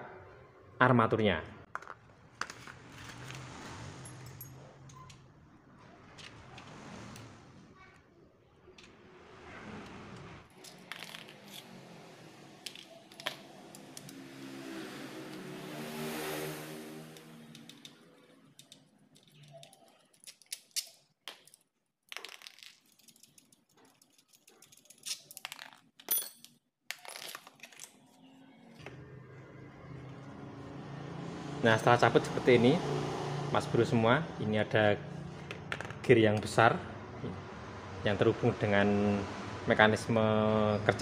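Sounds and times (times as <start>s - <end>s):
plastic and metal clicks and scrapes: 17.5s - 21.6s.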